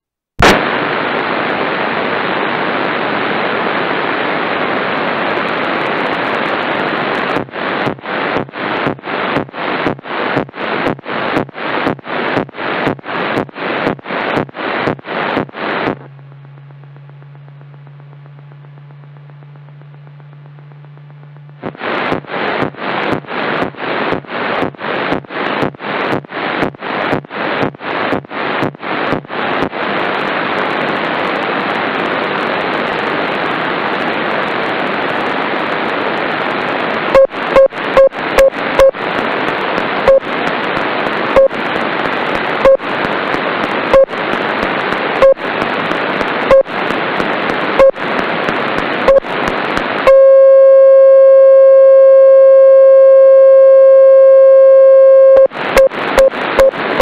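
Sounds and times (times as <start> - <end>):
loud steady buzzing tone: 0.4 - 29.4, 31.9 - 57.0
radio static pulsing: 0.4 - 57.0
short beeps: 50.1 - 56.7.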